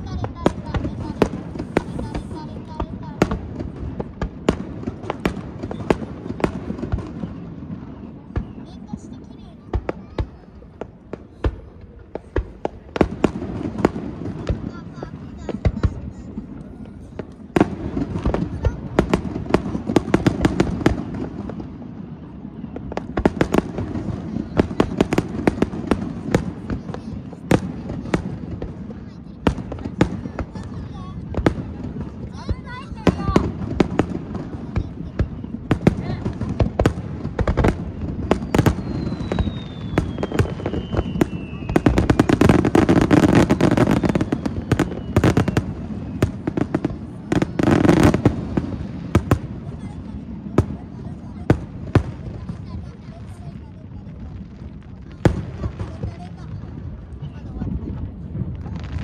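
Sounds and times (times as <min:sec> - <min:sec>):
fireworks crackling and popping: 0:00.0 - 0:59.0
firework shells bursting: 0:35.8 - 0:49.6.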